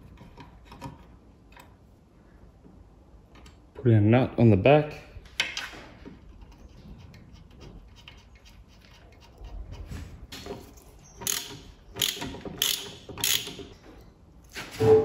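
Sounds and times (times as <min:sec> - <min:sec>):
socket ratchet clicking: 0:11.2 - 0:13.7.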